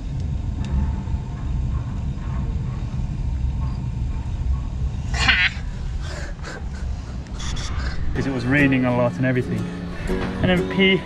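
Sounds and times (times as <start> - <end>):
steady low rumble: 0.0 - 11.0
high wavering animal call: 5.1 - 6.8.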